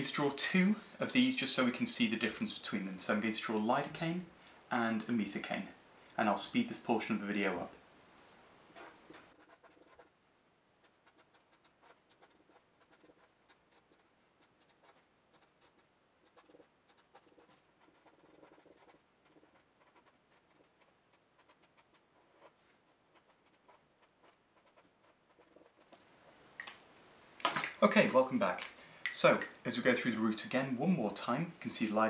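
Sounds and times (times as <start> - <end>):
marker pen writing on paper: 8.7 - 10.1, 10.8 - 26.0.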